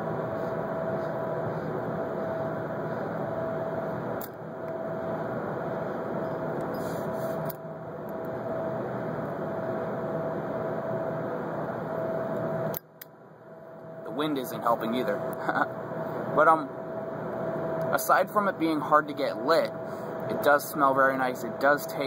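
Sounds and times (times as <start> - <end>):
lighter flame hissing: 6.6 - 7.6.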